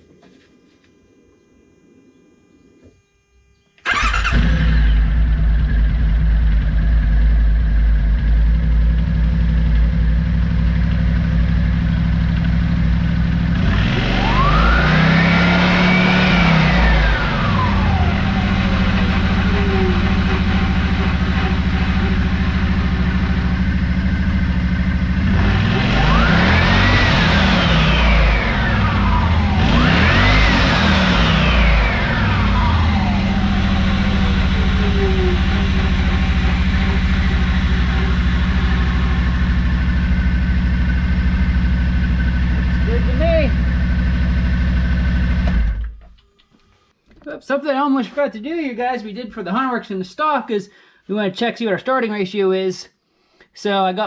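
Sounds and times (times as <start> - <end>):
engine starting and idling: 3.8 - 12.7, 13.3 - 46.3
engine revving: 3.8 - 46.0.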